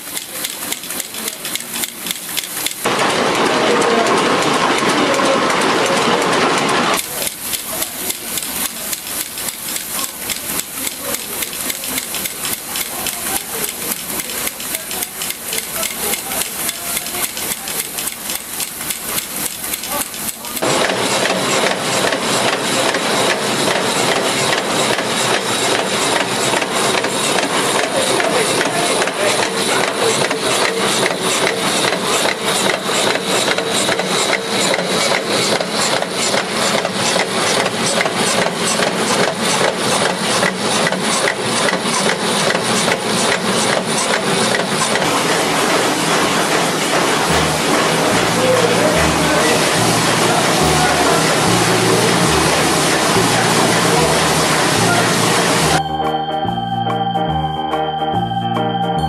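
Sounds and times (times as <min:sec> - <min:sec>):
machinery metal clatter: 0:00.0 - 0:54.8
dense machine rattle: 0:07.0 - 0:54.1.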